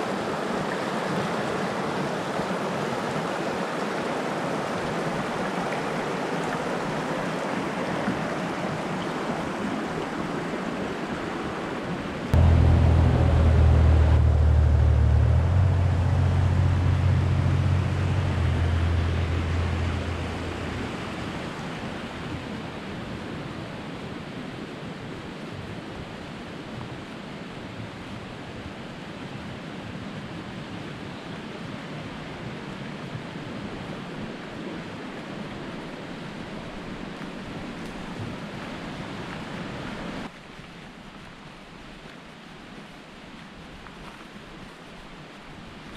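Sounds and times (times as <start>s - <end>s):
mountain stream rushing: 0.0s - 45.9s
loud low motor drone: 12.4s - 22.9s.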